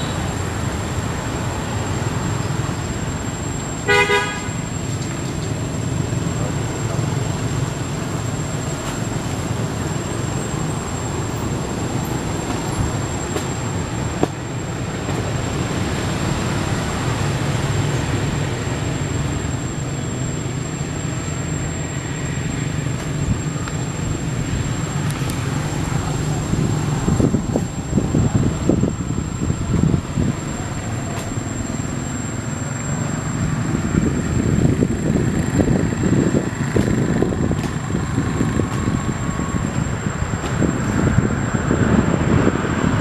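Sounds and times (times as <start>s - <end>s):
faint high whine: 0.0s - 43.0s
road traffic rumble: 0.0s - 43.0s.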